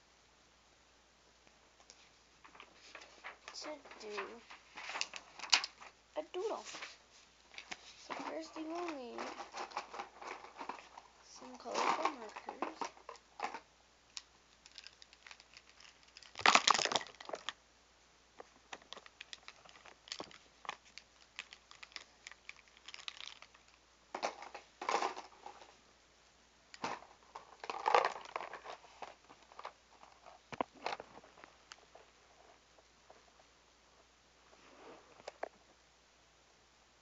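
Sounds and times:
rustling: 1.5 - 17.6, 18.3 - 26.0, 26.7 - 35.9
plastic markers clicking and clattering: 3.4 - 6.5, 7.5 - 17.6, 18.4 - 25.7, 26.7 - 31.0.

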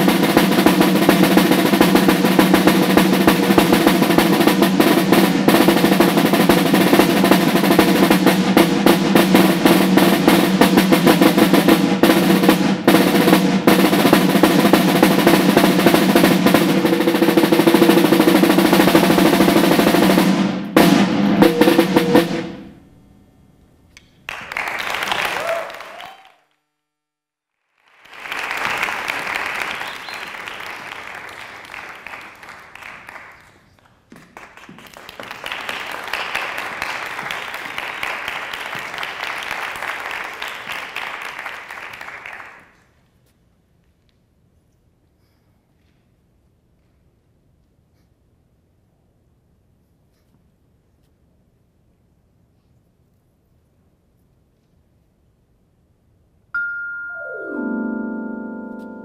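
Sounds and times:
snare drum rolls: 0.0 - 23.0, 27.9 - 42.8
audience applause: 24.3 - 26.5, 27.7 - 42.8.

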